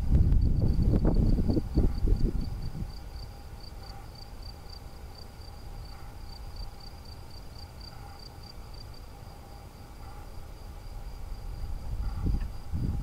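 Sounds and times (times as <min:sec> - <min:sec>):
wind rumble on microphone: 0:00.0 - 0:04.6, 0:10.2 - 0:13.0
insect chirping: 0:00.0 - 0:13.0.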